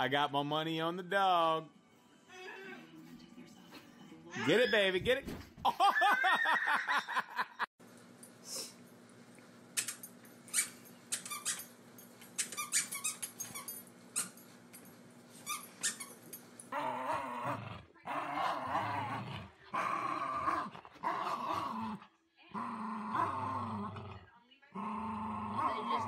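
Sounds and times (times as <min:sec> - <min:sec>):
dog toy squeaks and clicks: 0:09.8 - 0:14.4, 0:15.4 - 0:16.4
dogs growling: 0:16.6 - 0:26.0.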